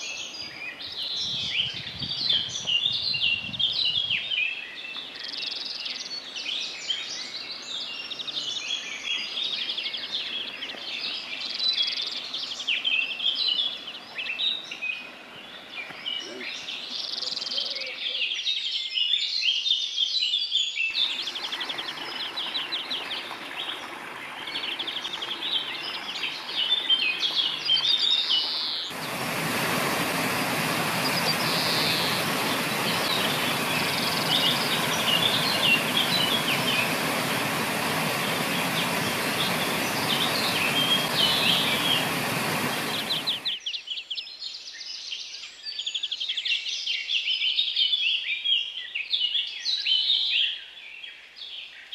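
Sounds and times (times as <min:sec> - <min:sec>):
songbirds chirping and trilling: 0:00.0 - 0:51.9
water pouring over weir: 0:21.0 - 0:43.5.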